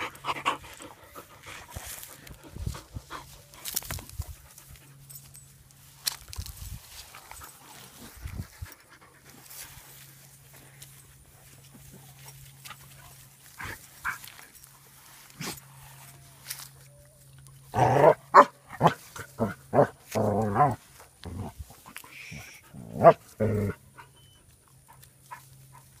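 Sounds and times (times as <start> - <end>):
dogs barking: 17.8 - 19.0, 23.0 - 23.2.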